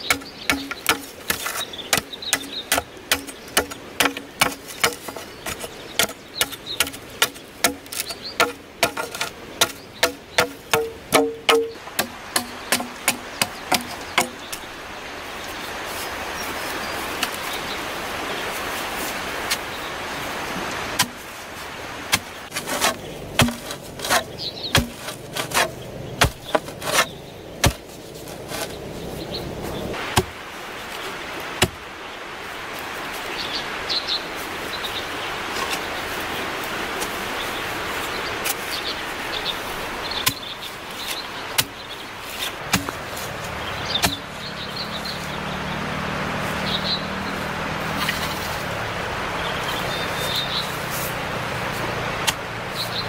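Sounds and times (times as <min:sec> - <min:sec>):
knocks and chops on bamboo: 0:00.0 - 0:14.6, 0:21.0 - 0:21.2, 0:22.1 - 0:28.7, 0:30.0 - 0:30.4, 0:31.6 - 0:31.8, 0:40.2 - 0:40.4, 0:42.4 - 0:44.3
steady background hiss: 0:00.0 - 0:45.4.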